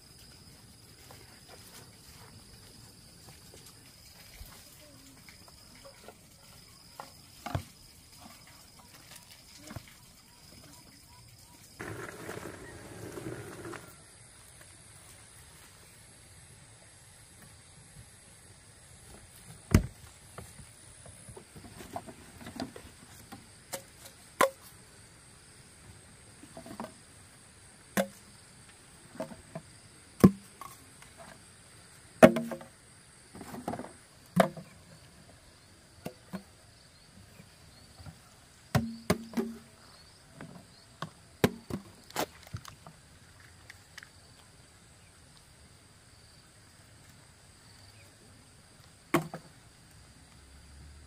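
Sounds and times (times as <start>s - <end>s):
high buzz of insects: 10.2s - 41.8s.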